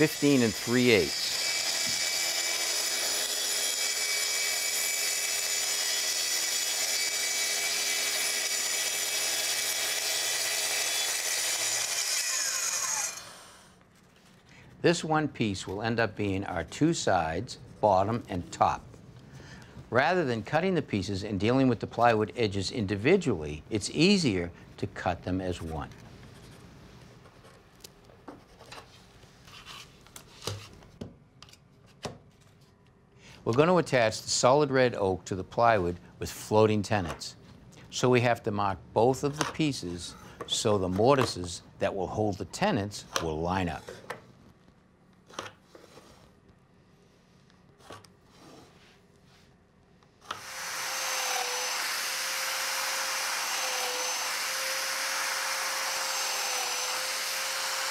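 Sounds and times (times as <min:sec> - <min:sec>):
saw motor winding down: 0:00.0 - 0:13.6, 0:50.3 - 0:57.9
track saw cutting plywood: 0:00.0 - 0:13.6, 0:50.3 - 0:57.9.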